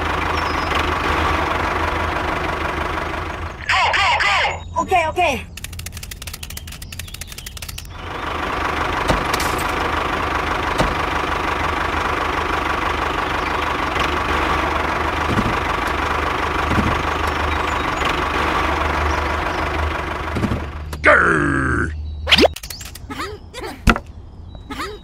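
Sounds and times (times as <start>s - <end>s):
sharp clicks: 5.5s - 7.9s, 22.3s - 23.1s.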